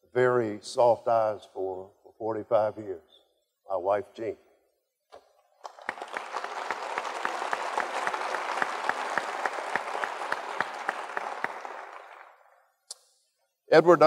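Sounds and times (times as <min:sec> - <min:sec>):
audience applauding: 0:05.6 - 0:12.6.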